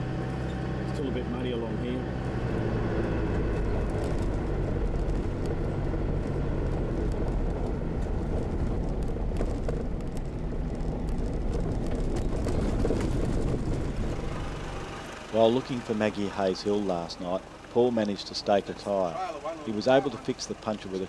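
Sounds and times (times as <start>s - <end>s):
engine and tyre rumble: 0.0s - 21.0s
knocks and rattles: 6.6s - 14.5s.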